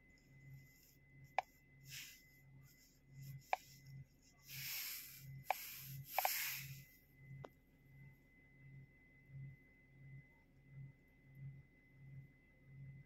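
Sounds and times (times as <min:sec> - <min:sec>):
faint low pulsing hum: 0:00.0 - 0:08.1
hand rustling over device: 0:04.5 - 0:06.8
touchscreen taps clicking: 0:05.5 - 0:06.6.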